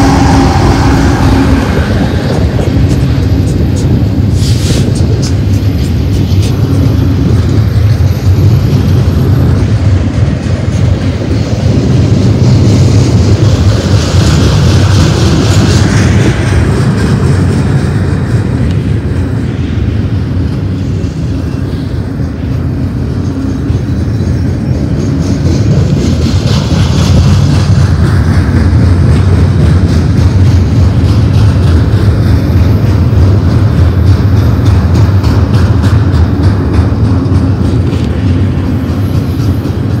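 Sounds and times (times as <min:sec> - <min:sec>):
train wheels rumbling on rails: 0:00.0 - 0:40.0.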